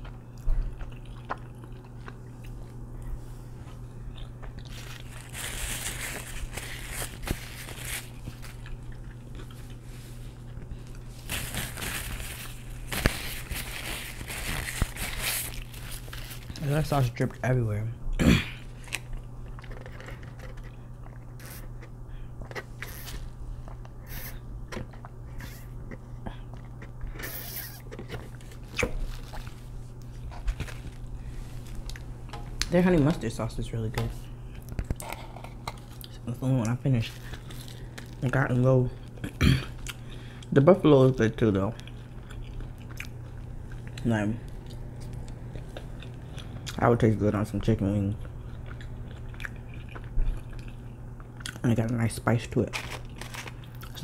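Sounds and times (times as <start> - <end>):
paper napkins crumpling: 4.6 - 8.8, 11.0 - 17.2, 28.3 - 32.0, 52.6 - 54.0
paper box clicks and rustles: 52.7 - 53.6.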